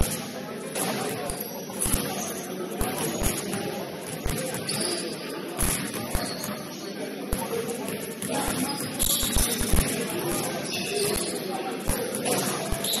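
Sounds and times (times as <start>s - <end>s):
gym background noise: 0.0s - 13.0s
sneaker squeaks: 4.2s - 6.9s, 7.9s - 11.5s, 12.2s - 13.0s.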